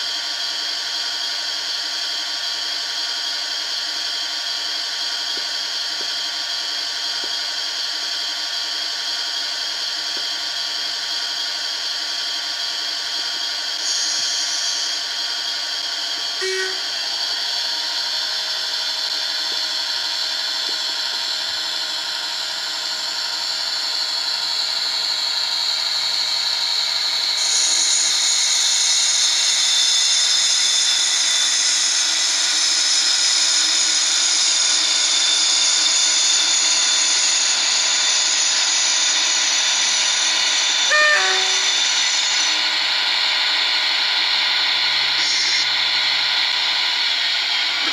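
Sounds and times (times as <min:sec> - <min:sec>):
model train diesel engine sound: 0:00.0 - 0:47.9.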